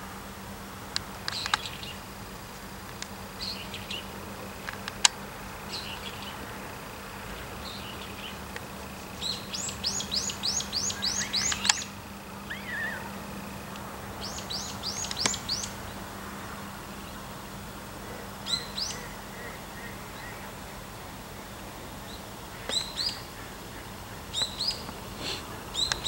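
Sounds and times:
sharp click: 0:11.4 - 0:11.9, 0:15.0 - 0:15.5.

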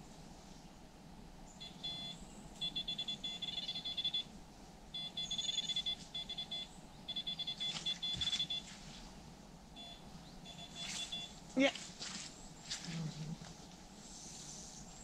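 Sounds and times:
bite alarm beeping: 0:01.6 - 0:04.3, 0:04.9 - 0:08.7, 0:09.8 - 0:11.4.

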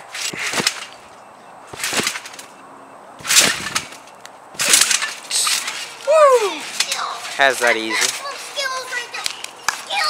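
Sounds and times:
trampoline bounce impacts: 0:00.0 - 0:01.0, 0:01.7 - 0:02.6, 0:03.2 - 0:08.5.

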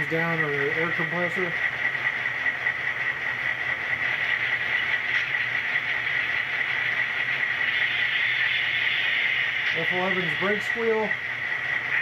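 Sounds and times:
diesel locomotive idle hum: 0:00.0 - 0:12.0
steady hiss: 0:04.0 - 0:12.0.

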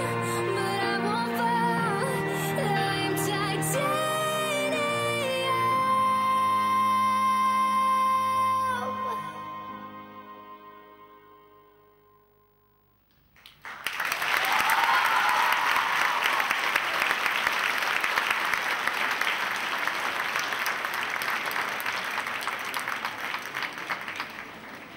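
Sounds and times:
audience applause: 0:13.4 - 0:24.9
person cheering: 0:14.3 - 0:16.6.

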